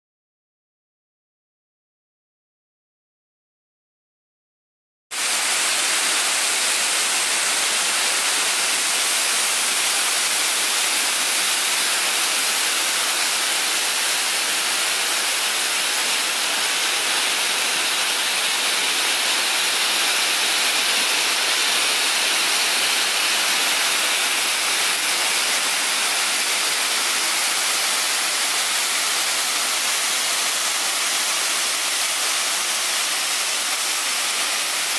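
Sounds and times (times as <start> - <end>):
waterfall rushing: 5.2 - 34.9.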